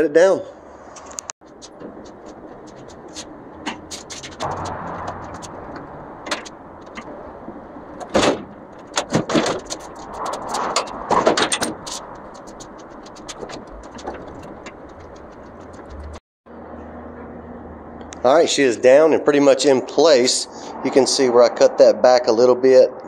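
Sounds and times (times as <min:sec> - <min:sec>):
truck bed knocking and scraping: 0:01.4 - 0:16.2.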